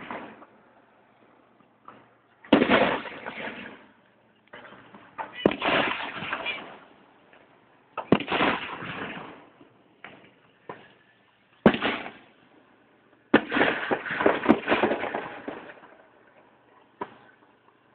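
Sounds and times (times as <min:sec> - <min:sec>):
fireworks bangs with crackle: 0:00.0 - 0:00.6, 0:01.8 - 0:04.0, 0:04.6 - 0:06.9, 0:08.0 - 0:11.0, 0:11.6 - 0:12.3, 0:13.3 - 0:16.2.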